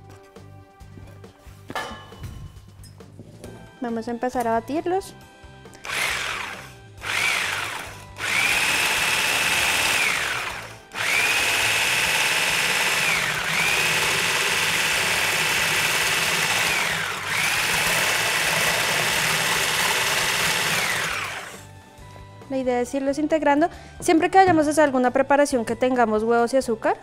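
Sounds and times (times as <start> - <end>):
stick blender motor whine: 5.8 - 21.8.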